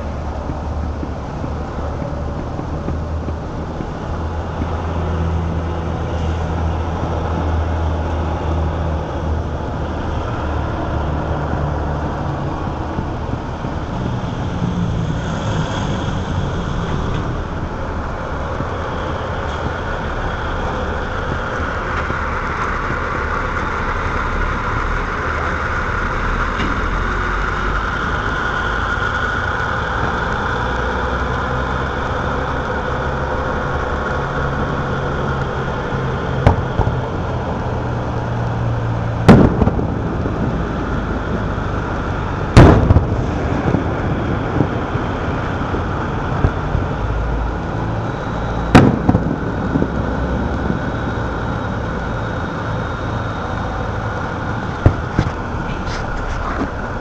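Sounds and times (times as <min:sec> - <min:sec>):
steady background noise: 0:00.0 - 0:57.0
firework shells bursting: 0:39.2 - 0:44.0, 0:48.5 - 0:51.5
faint firework pops: 0:39.3 - 0:39.8, 0:48.7 - 0:49.8.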